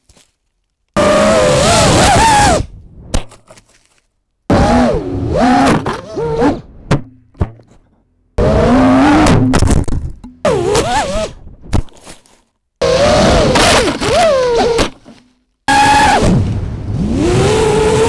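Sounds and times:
drone motors whining: 8.4 - 9.6, 12.8 - 15.0.

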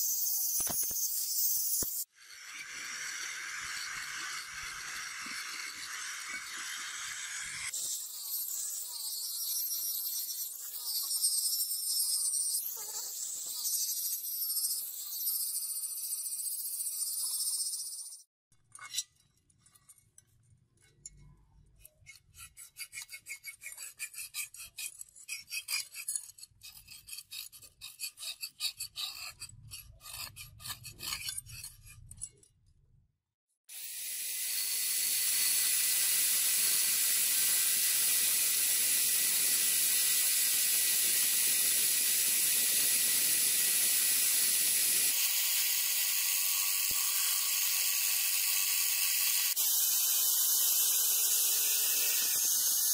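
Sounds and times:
metal scratching on steel blade: 0.0 - 20.2, 20.8 - 32.6
rotary tool grinding: 0.0 - 20.2, 20.8 - 32.6, 33.7 - 52.9.

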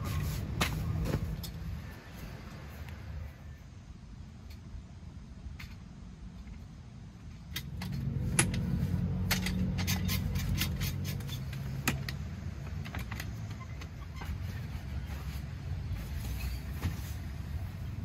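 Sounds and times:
vehicle engine running: 7.2 - 16.4
metallic clicks and clinks: 7.5 - 13.6.

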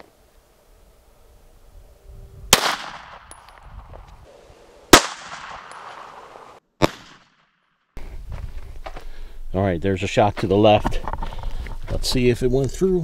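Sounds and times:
pistol shots with echo: 2.5 - 3.4, 4.9 - 7.5.

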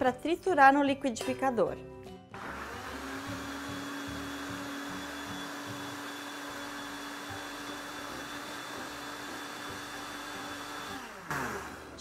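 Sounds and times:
electric blender running: 2.4 - 12.0.

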